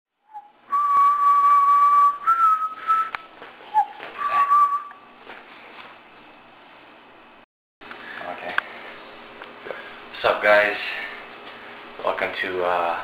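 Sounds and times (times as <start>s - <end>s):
person whistling: 0.2s - 5.0s.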